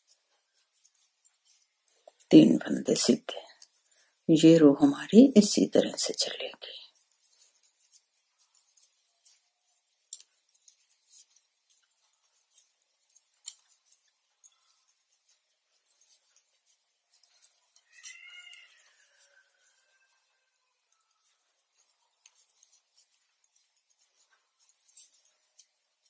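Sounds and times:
knitting needles clicking: 0.0s - 26.0s.

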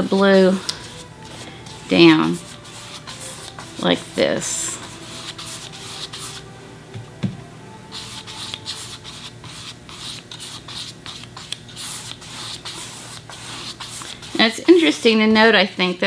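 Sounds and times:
paintbrush scratching on canvas: 0.8s - 6.4s, 7.9s - 14.7s.

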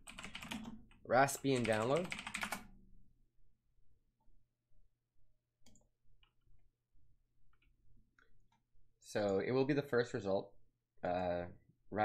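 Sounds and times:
keyboard and mouse clicking: 5.6s - 6.4s.

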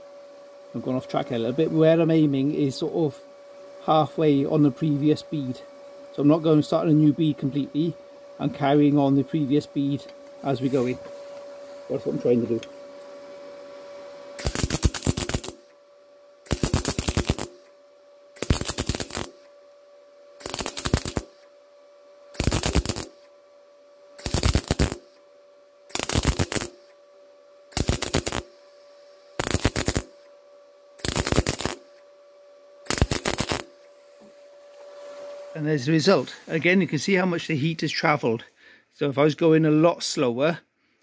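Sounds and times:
faint steady hum: 0.0s - 41.0s
welding arc crackling: 14.4s - 15.8s, 16.4s - 17.8s, 18.4s - 19.6s, 20.4s - 21.5s, 22.3s - 23.3s, 24.2s - 25.2s, 25.9s - 26.9s, 27.7s - 28.6s, 29.4s - 30.2s, 31.0s - 32.0s, 32.8s - 33.8s.

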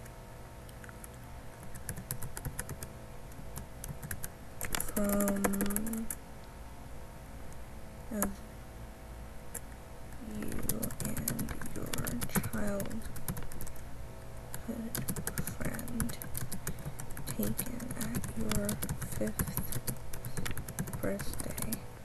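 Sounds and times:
keyboard typing: 0.7s - 6.2s, 9.5s - 13.8s, 14.5s - 21.8s.

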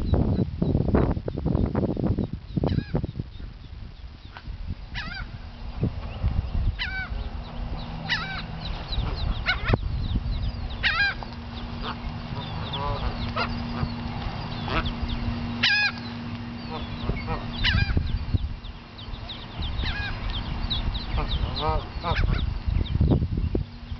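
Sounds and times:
ducklings peeping: 0.0s - 23.9s
geese honking: 4.3s - 6.2s, 6.8s - 9.8s, 10.6s - 22.6s.

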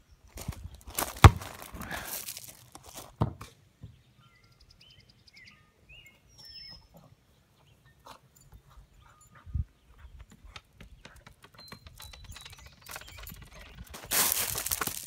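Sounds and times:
birds chirping: 3.8s - 15.0s
rustling and scraping: 12.2s - 15.0s.

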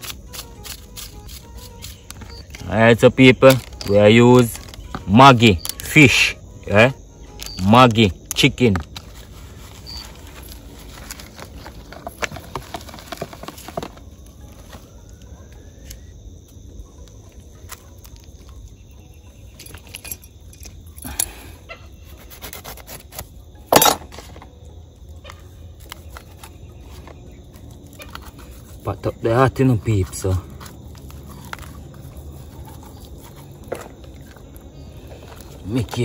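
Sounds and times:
packets rustling: 8.8s - 15.2s.

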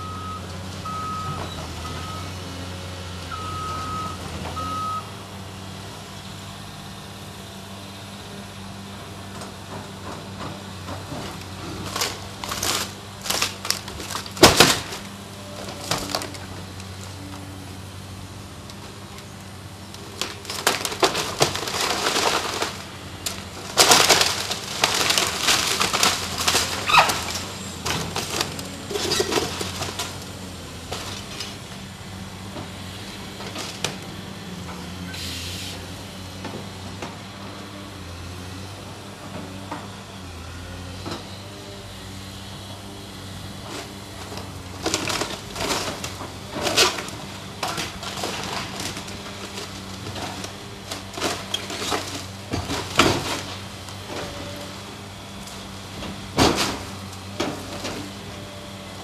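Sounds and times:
excavator engine humming: 0.0s - 59.0s
wood cracking and splintering: 10.4s - 17.2s, 19.8s - 31.6s, 43.7s - 54.5s
debris crashing down: 11.8s - 15.0s, 20.2s - 30.2s.

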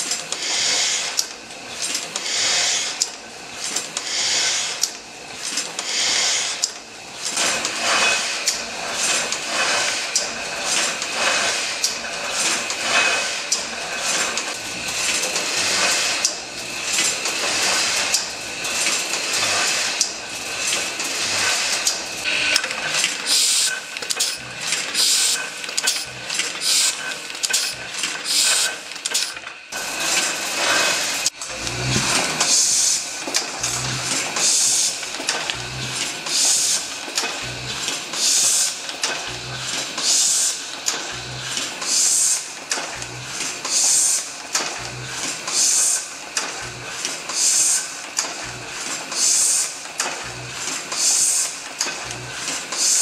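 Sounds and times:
printing press clattering: 0.0s - 53.0s.

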